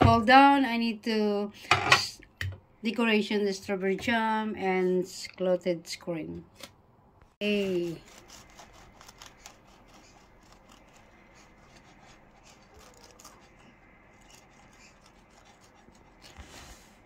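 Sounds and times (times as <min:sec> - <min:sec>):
knife cutting through scone: 0:07.4 - 0:16.9.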